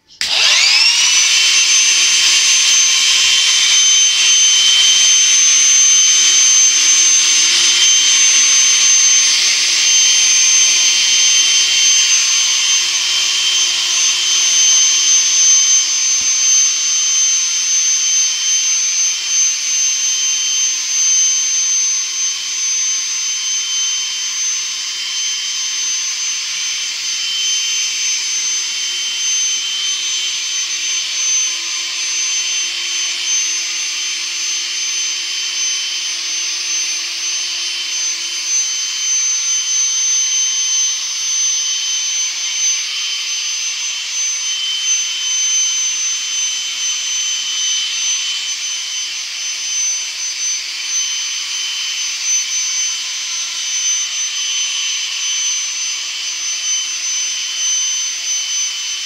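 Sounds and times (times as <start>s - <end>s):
vacuum motor rushing air: 0.0s - 16.6s
high-pitched motor whine: 0.0s - 59.0s.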